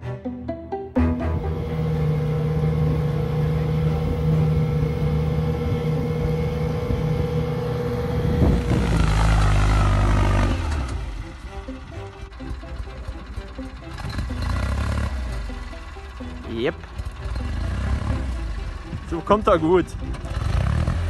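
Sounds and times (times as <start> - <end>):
boat engine running: 1.0 - 21.0
loud rushing noise: 1.3 - 13.0.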